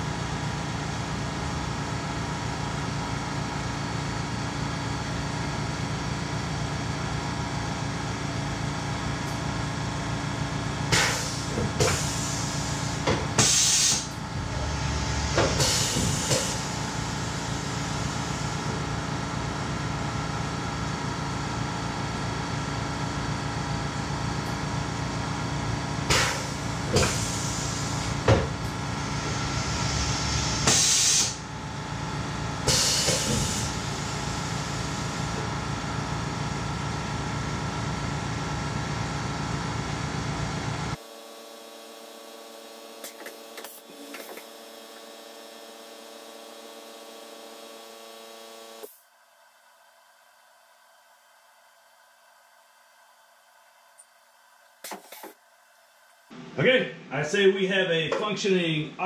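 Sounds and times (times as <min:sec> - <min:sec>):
machine running noise: 0:00.0 - 0:49.0, 0:56.3 - 0:58.8
compressed air hissing bursts: 0:10.9 - 0:18.5, 0:26.1 - 0:31.4
low hum: 0:14.0 - 0:19.8.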